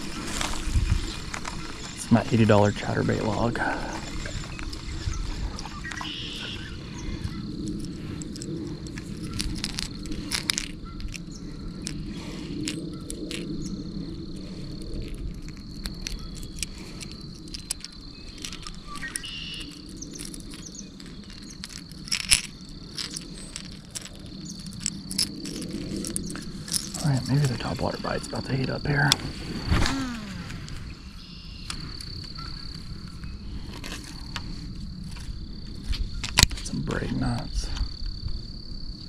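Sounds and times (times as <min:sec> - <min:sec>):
insects trilling: 0:00.0 - 0:39.0.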